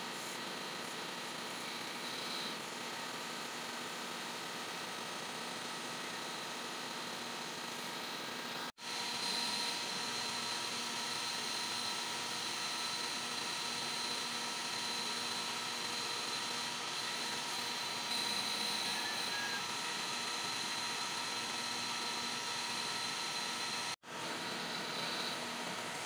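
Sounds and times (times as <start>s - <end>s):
metal lathe running: 4.7s - 26.0s
thin high whine: 15.9s - 25.8s.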